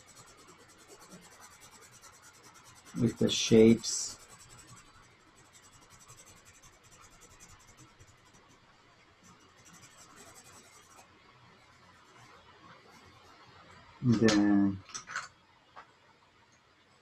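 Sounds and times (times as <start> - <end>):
pencil scratching on paper: 0.0 - 8.6, 9.2 - 11.0, 12.1 - 13.4.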